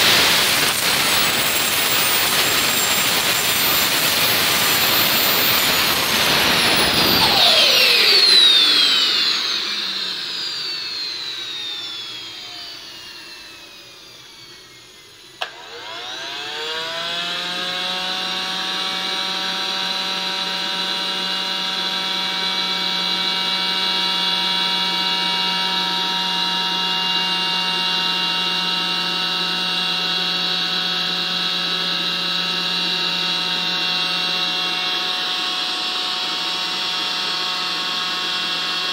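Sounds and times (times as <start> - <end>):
electric starter motor whine: 0.0 - 38.9
turbine whine spooling down: 0.0 - 38.9
click: 15.4 - 15.6.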